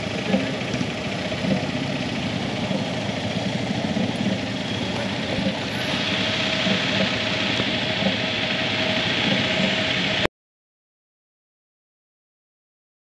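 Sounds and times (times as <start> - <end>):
motorcycle engines idling: 0.0 - 10.3.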